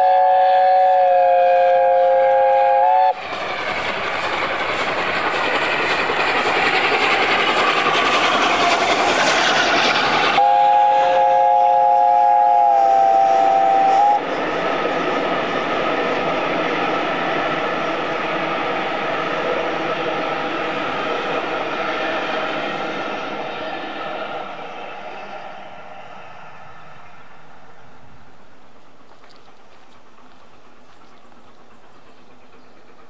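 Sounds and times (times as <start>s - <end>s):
steam locomotive chime whistle: 0.0s - 3.2s, 10.3s - 14.2s, 23.0s - 28.2s
train rushing past: 0.0s - 33.0s.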